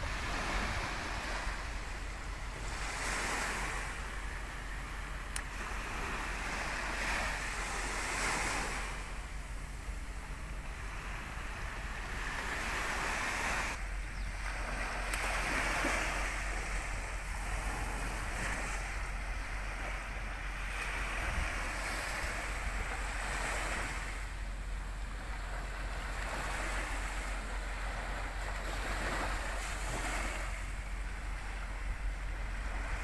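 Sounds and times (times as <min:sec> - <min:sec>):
wind on microphone: 0:00.0 - 0:24.3
small waves washing ashore: 0:00.0 - 0:33.0.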